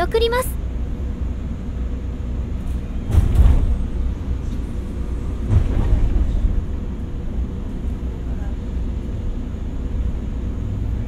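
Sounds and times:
train cabin low rumble: 0:00.0 - 0:11.0
train clunks: 0:02.5 - 0:09.9.

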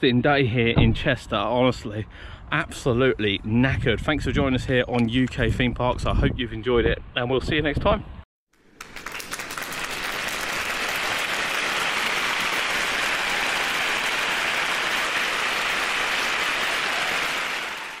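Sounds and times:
crowd applauding: 0:08.6 - 0:18.0.

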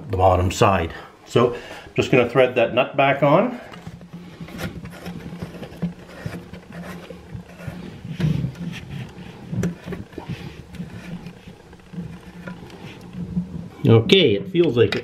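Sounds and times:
steady low hum: 0:00.0 - 0:15.0
plastic nut clicking and rubbing: 0:03.7 - 0:13.6.

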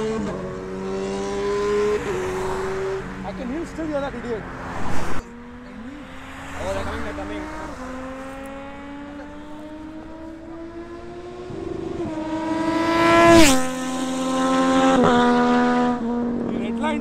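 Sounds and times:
motorcycle high-speed flyby: 0:00.0 - 0:17.0.

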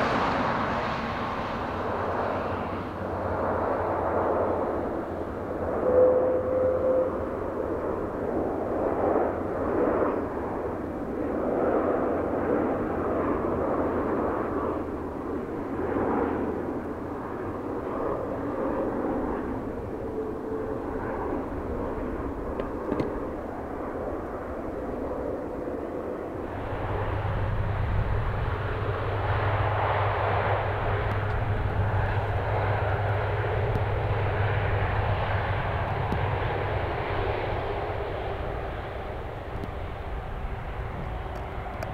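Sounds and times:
jet engine humming on runway: 0:00.0 - 0:41.9
jet engines running: 0:00.0 - 0:41.9.

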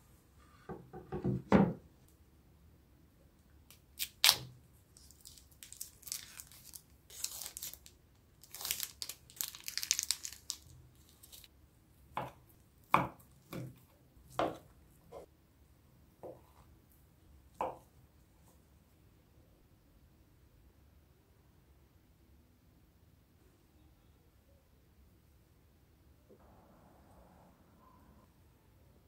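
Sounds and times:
plastic casing tearing: 0:04.0 - 0:11.5.

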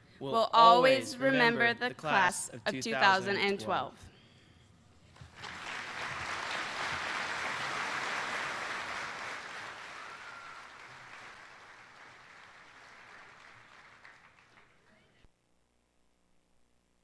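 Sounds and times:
audience applauding: 0:05.2 - 0:14.9.

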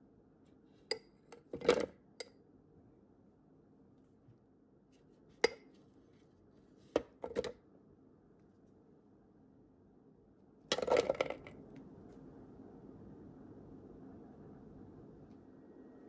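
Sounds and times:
vegetable pieces clattering in bowl: 0:10.7 - 0:11.5.

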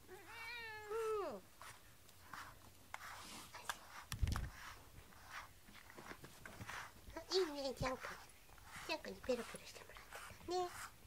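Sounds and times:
cat meowing: 0:00.0 - 0:01.4
brush rustling through fur: 0:01.0 - 0:11.0.

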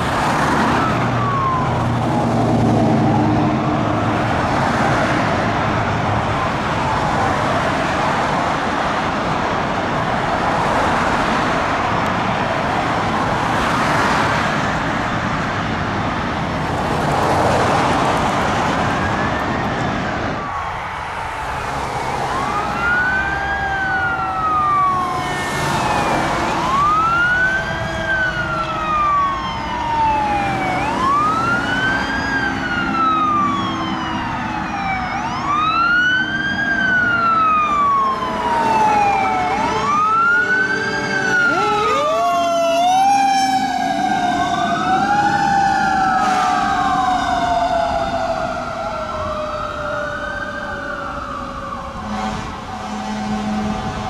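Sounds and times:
lower siren tone: 0:00.0 - 0:04.7, 0:18.7 - 0:54.0
fire engine siren wailing: 0:00.0 - 0:54.0
traffic noise: 0:00.0 - 0:54.0.

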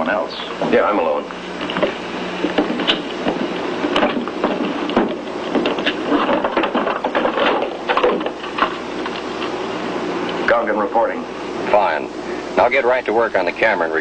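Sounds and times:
steady low hum: 0:00.0 - 0:14.0
equipment clicking and clattering: 0:01.6 - 0:09.6.

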